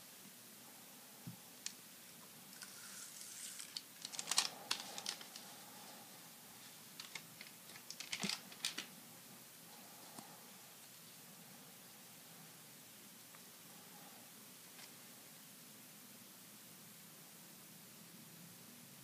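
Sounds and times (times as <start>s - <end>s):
cards sliding: 2.6s - 5.5s
foil wrapper crinkling: 2.6s - 5.5s, 7.0s - 8.9s.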